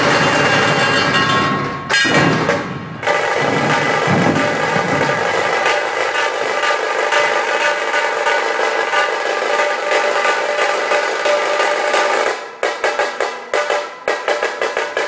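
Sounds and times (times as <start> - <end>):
troupe drumming fast rhythm: 2.9 - 15.0.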